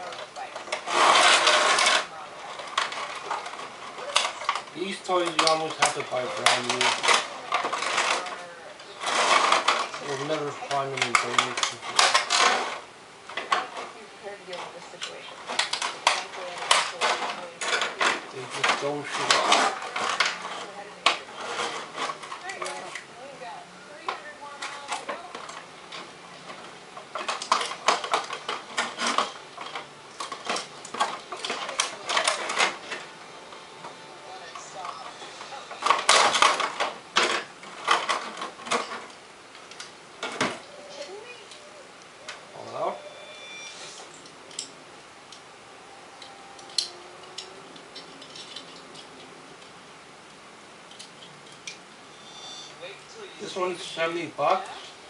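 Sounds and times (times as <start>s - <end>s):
plastic wrapping crinkling: 0.0s - 23.1s.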